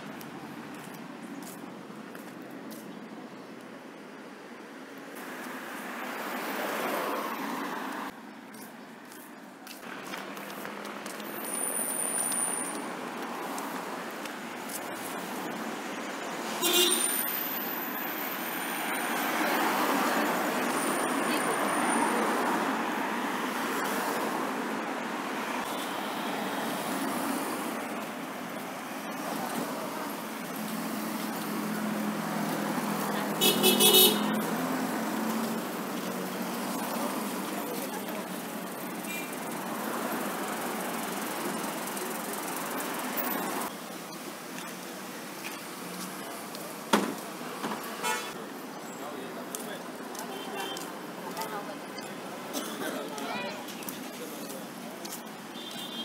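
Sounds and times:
traffic on wet street: 0.0s - 56.0s
cars driving past: 5.0s - 8.2s, 9.8s - 43.8s.

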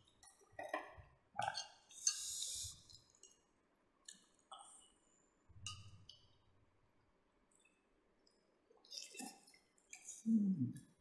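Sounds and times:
short hiss: 2.1s - 2.8s.

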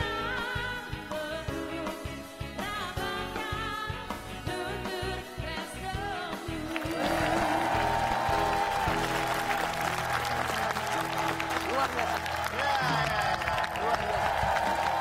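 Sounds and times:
woman singing: 0.0s - 7.7s
drum kit: 0.0s - 15.0s
applause: 6.7s - 15.0s.

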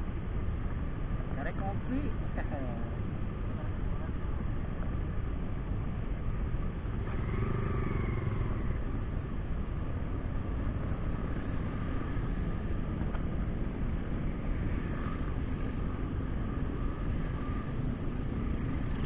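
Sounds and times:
road noise: 0.0s - 19.0s
motorcycle engine: 6.1s - 19.0s.

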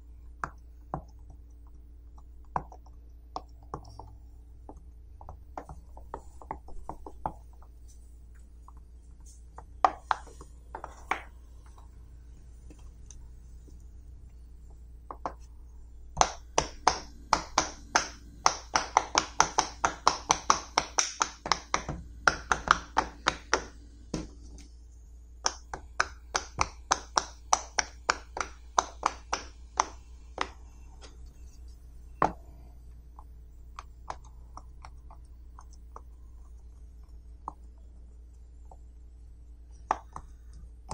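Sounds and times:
pop-it toy bubbles popping: 16.2s - 23.7s, 25.4s - 30.5s.

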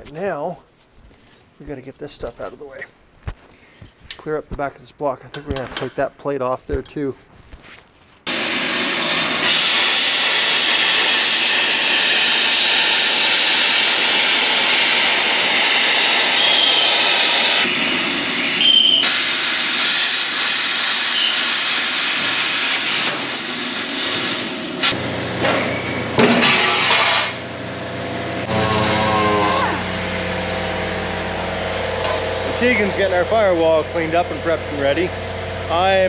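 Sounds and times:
plasma cutter hissing: 8.3s - 27.6s, 32.0s - 33.6s.

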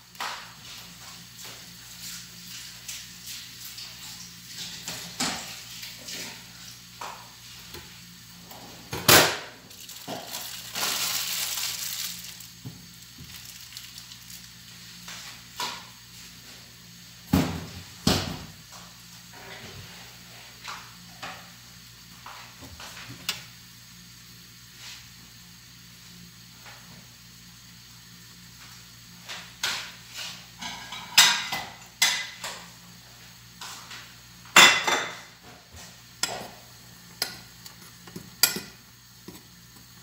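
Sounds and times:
kitchen knocks and clatters: 2.9s - 7.8s, 8.6s - 12.0s, 17.3s - 18.5s, 29.3s - 32.7s, 34.5s - 36.6s, 37.2s - 39.5s
plastic packets crinkling: 9.7s - 14.6s.

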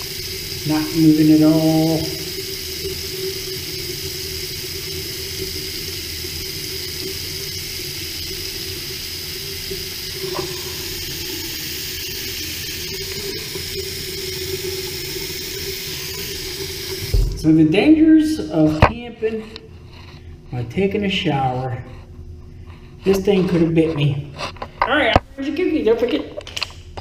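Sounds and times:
shower water running: 0.0s - 18.8s
low hum: 17.0s - 18.2s.

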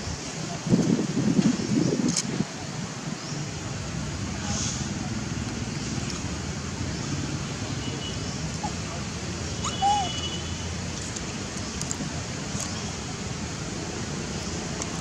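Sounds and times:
outdoor background noise: 0.0s - 15.0s
monkey squeaking: 9.6s - 10.2s.

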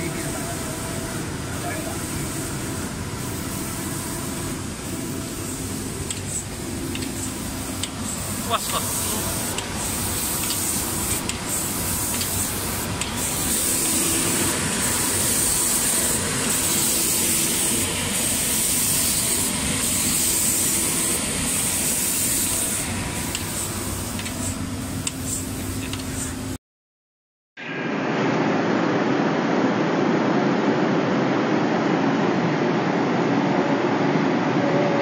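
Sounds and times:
paint spray hiss: 0.0s - 26.6s.

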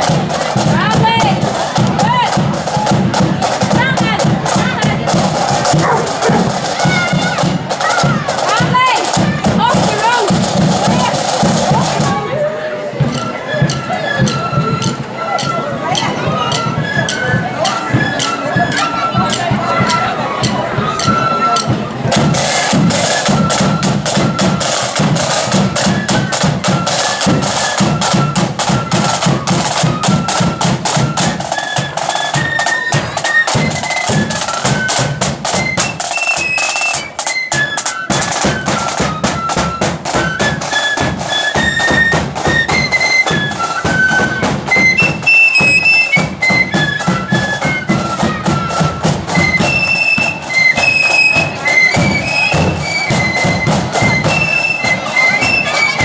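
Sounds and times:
bass drum beat: 0.0s - 12.2s
flutes playing melody: 0.0s - 56.0s
side drum strokes: 0.0s - 56.0s.

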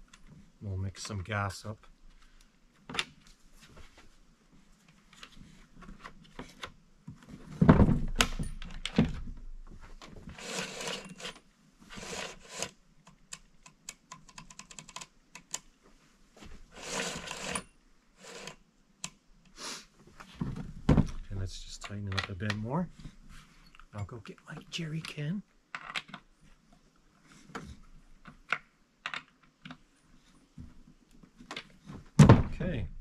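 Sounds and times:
chainsaw thumping down on boards: 32.2s - 32.6s.

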